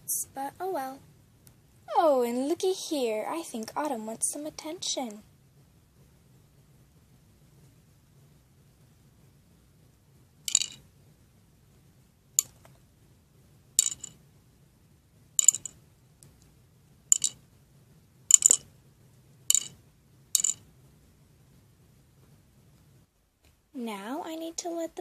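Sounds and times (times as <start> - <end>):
toy figures clicking together: 10.5 - 10.8, 13.8 - 14.1, 15.4 - 15.8, 17.1 - 17.4, 18.3 - 18.6, 19.5 - 19.8, 20.4 - 20.6.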